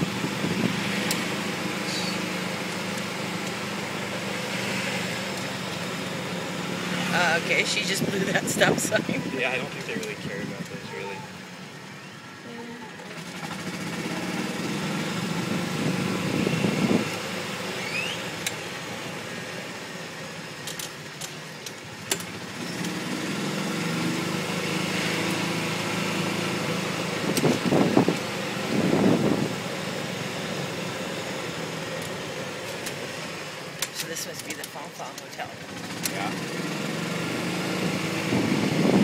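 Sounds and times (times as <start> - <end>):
golf cart motor hum: 0.0 - 39.0
road noise: 0.0 - 39.0.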